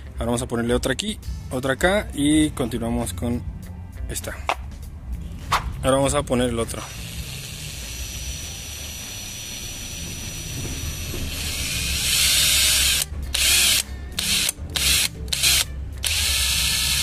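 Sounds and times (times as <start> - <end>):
cordless drill driving screw: 11.3 - 17.0.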